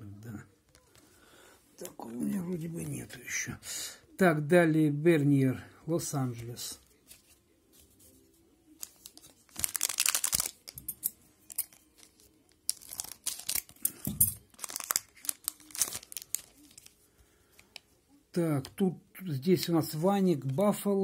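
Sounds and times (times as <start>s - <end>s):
foil wrapper crinkling and tearing: 8.8s - 17.0s.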